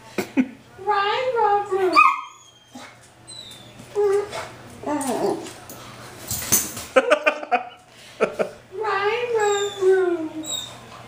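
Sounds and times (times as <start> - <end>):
dog whining: 1.9 - 5.5, 9.3 - 10.9
dog thumping on tile floor: 5.1 - 7.0.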